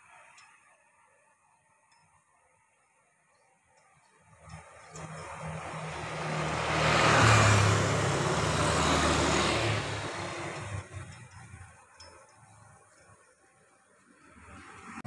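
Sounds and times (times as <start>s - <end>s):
motorcycle passing: 4.5s - 11.4s.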